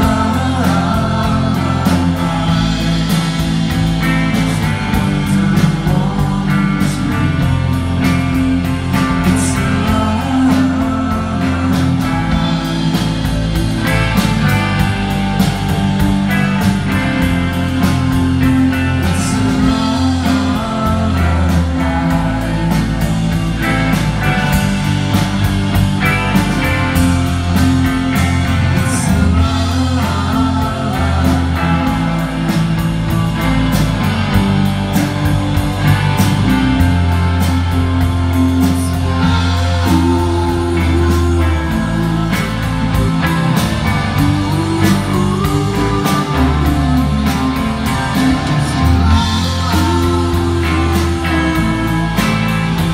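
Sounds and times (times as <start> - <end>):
live rock band playing: 0.0 - 52.9.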